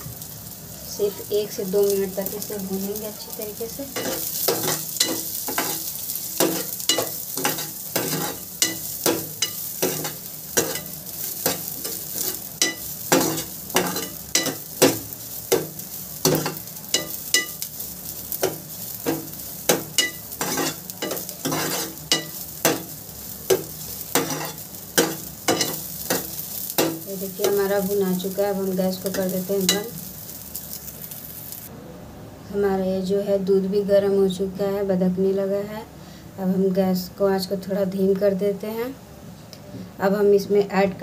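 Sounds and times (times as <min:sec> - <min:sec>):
light sizzle: 0:00.0 - 0:41.0
ladle scraping frying pan: 0:04.0 - 0:22.9, 0:23.5 - 0:27.6.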